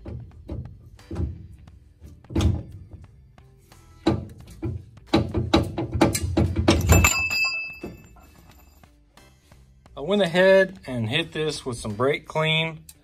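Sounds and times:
heavy metal clunks and knocks: 0.0 - 3.1, 4.0 - 8.1
high ringing metal tone: 6.8 - 8.8.

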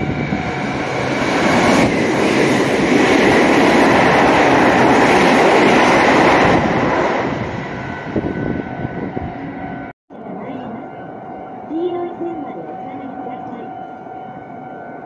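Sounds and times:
train passing at speed: 0.0 - 15.0.

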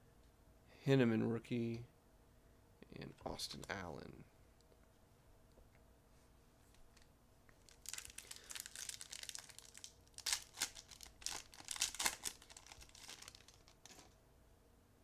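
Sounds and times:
foil wrapper tearing and crinkling: 7.6 - 14.1.

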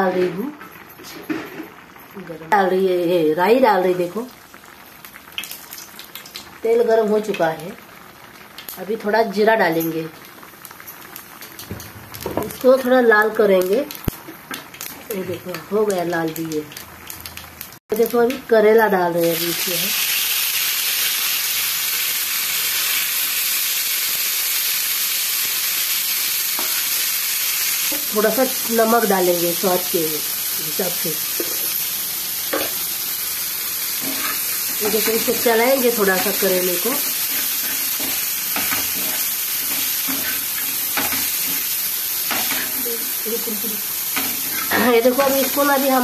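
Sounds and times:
vegetables sizzling in hot oil: 0.0 - 46.0
metal spatula scraping: 34.0 - 36.4, 37.0 - 41.6, 44.2 - 45.6.

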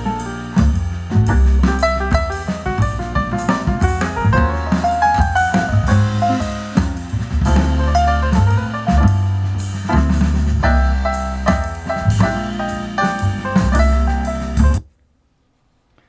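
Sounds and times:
instrumental music through speaker: 0.0 - 14.8.

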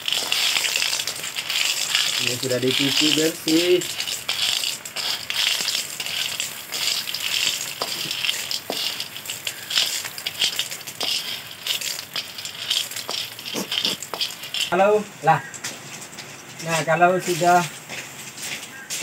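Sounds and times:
spatula scraping metal pan: 0.0 - 14.9
snail shells clattering on metal: 0.0 - 15.1.

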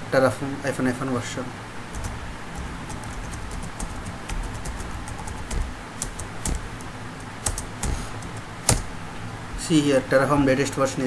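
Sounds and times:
keyboard keystroke clicks: 2.0 - 8.9.

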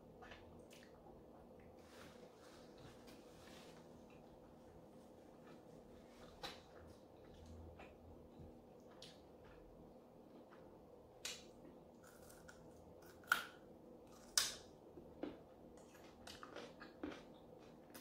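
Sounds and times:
crunchy chewing close to microphone: 15.2 - 18.0.

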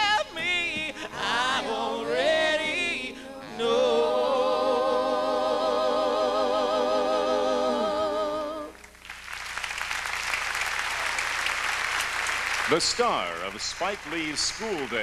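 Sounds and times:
man singing with vibrato: 0.0 - 8.7
audience applauding: 8.9 - 15.0.

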